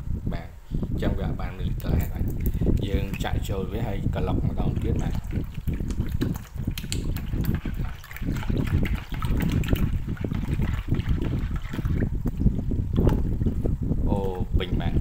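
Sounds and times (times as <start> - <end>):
water splashing into bowl: 2.0 - 3.5, 4.6 - 13.6
metal spoon stirring: 4.6 - 11.7.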